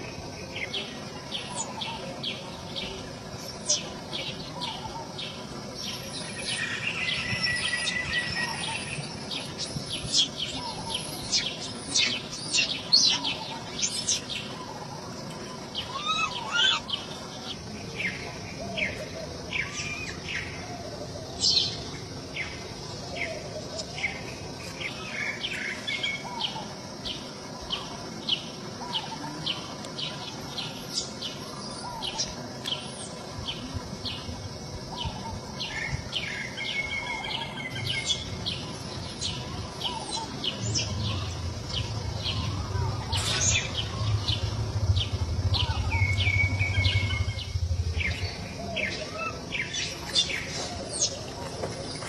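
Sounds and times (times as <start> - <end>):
low rumble: 39.6 - 51.2.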